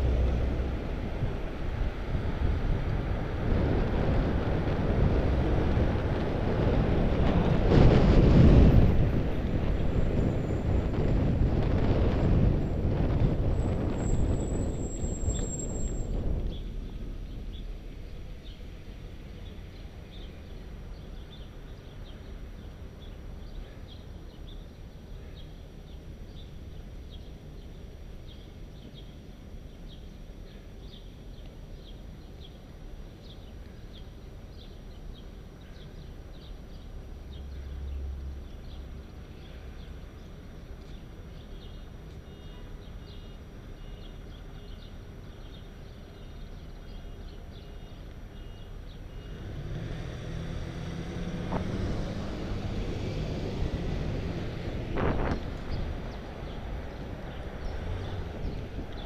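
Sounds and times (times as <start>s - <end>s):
wind buffeting microphone: 0.0s - 18.6s, 50.2s - 59.0s.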